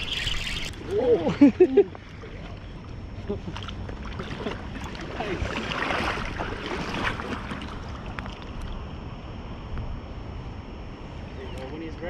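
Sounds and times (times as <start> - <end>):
water splashing: 0.0 - 8.8
wind rumble on microphone: 0.0 - 12.0.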